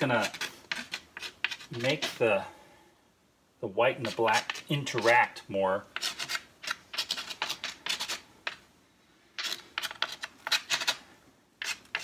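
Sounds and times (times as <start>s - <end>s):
knife blade scraping wet paint: 0.0s - 2.2s, 4.0s - 5.1s, 5.9s - 8.6s, 9.4s - 11.0s, 11.6s - 12.0s.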